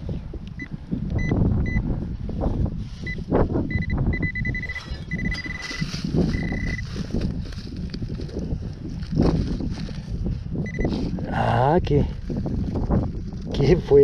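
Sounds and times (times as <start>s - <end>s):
wind: 0.0s - 14.0s
metal detector beeping: 0.6s - 1.8s, 3.0s - 6.9s, 10.6s - 11.0s
soil rustling by hand: 4.4s - 14.0s.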